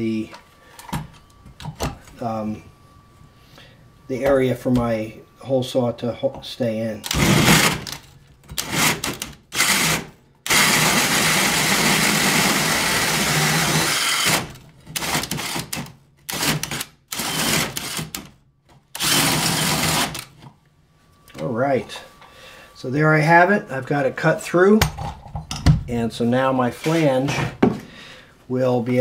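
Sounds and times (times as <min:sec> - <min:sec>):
drill with hole saw cutting wood: 0:07.1 - 0:08.0, 0:08.6 - 0:18.3, 0:19.0 - 0:20.3.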